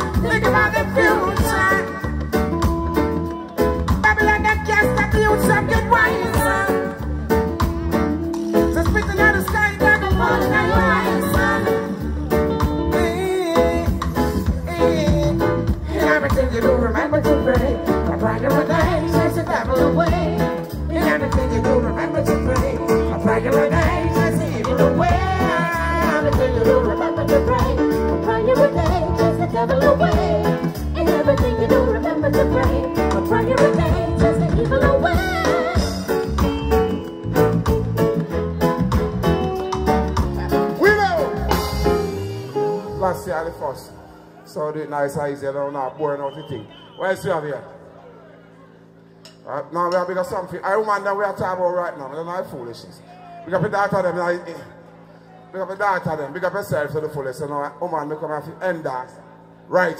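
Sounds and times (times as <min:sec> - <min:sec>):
man singing: 0:00.0 - 0:02.2, 0:04.0 - 0:07.0, 0:08.7 - 0:12.2, 0:12.8 - 0:35.7
live reggae band: 0:00.0 - 0:59.9.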